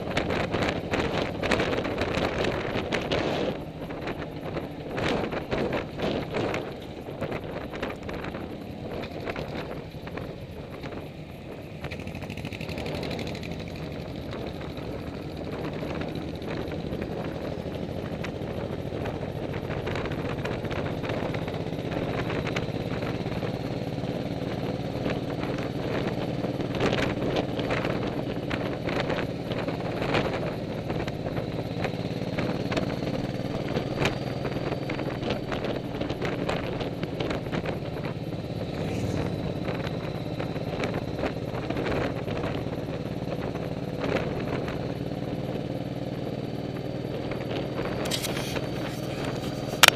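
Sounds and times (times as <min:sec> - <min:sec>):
motorcycle engine running: 0:00.0 - 0:49.9
wind rushing: 0:38.1 - 0:41.6.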